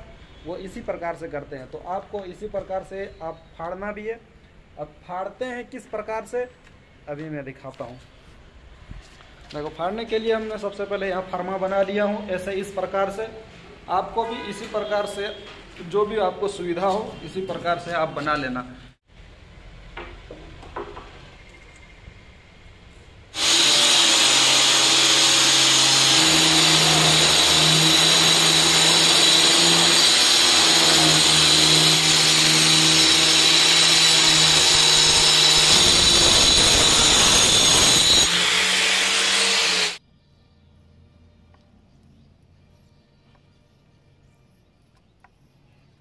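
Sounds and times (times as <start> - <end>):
stone cutter grinding granite: 23.4 - 40.0.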